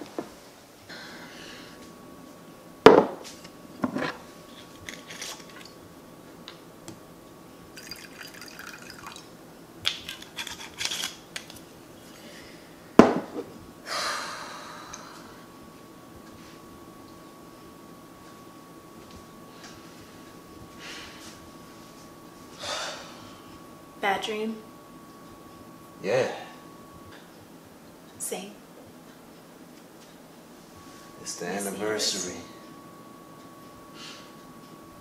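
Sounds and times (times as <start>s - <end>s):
crockery knocking on counter: 2.9s - 3.2s, 13.0s - 13.4s
liquid pouring into mug: 7.8s - 9.3s.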